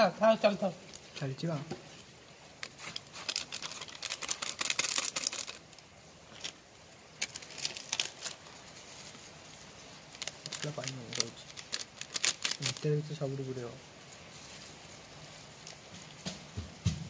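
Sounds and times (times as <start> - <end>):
plastic packet crinkling: 2.6 - 6.6, 7.2 - 8.6, 10.1 - 13.2.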